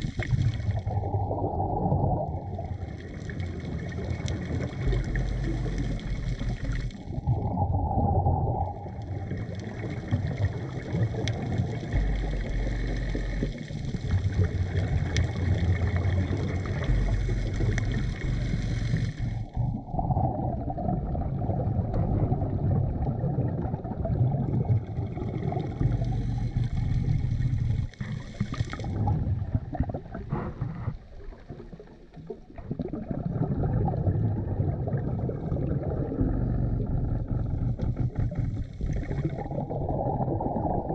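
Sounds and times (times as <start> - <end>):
churning water noise: 0.0 - 40.9
exhaled bubbles: 0.0 - 40.9
diver breathing through regulator: 16.9 - 19.6, 25.8 - 29.2, 30.2 - 31.4.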